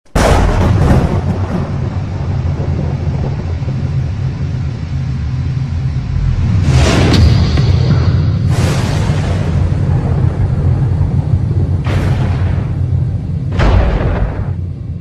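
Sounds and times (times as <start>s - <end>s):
thunder crash and rumble: 0.1s - 15.0s.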